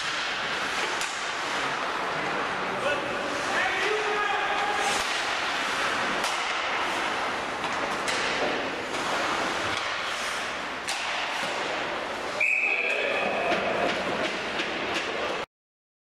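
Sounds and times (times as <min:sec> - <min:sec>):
hockey sticks and puck clacking: 0:00.0 - 0:02.5, 0:03.3 - 0:15.4
skates on ice: 0:00.0 - 0:15.4
referee's whistle blast: 0:12.4 - 0:12.9.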